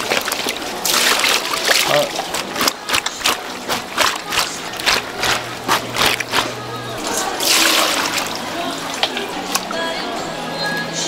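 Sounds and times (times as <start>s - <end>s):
wet splashes and knocks: 0.0s - 8.4s
low steady hum: 0.0s - 11.0s.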